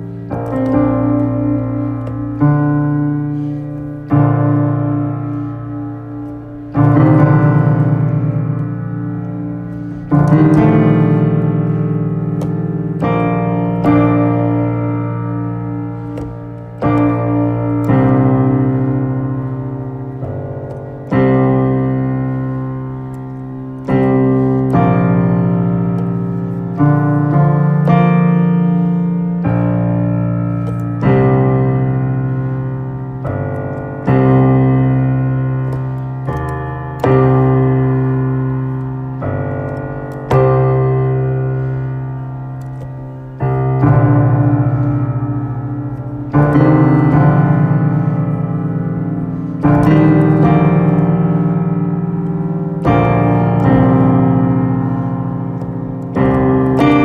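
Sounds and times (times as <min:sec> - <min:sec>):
low sustained keyboard chords: 0:00.0 - 0:57.0.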